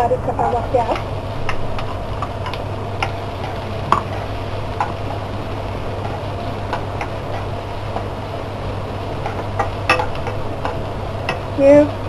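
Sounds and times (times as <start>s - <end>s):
low hum: 0.0s - 12.0s
spatula knocking frying pan: 0.9s - 5.2s, 6.0s - 8.2s, 9.2s - 11.6s.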